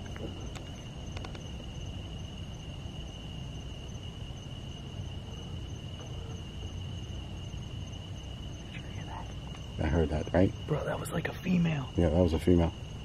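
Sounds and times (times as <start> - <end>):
faint clicks: 0.0 - 1.5
night insects trilling: 0.0 - 13.0.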